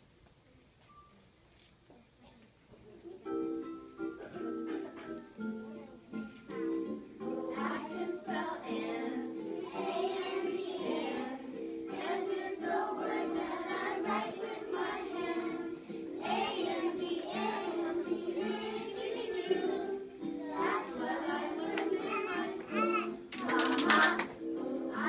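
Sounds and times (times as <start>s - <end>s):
musical accompaniment: 3.3s - 25.0s
children singing together: 7.2s - 25.0s.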